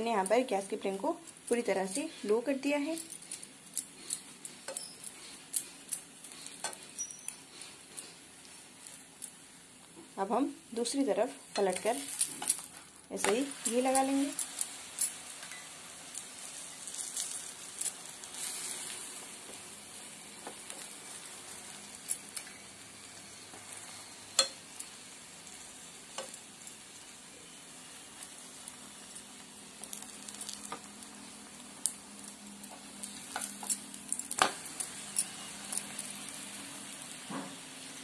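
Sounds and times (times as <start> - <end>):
ghee sizzling in pan: 0.0 - 38.0.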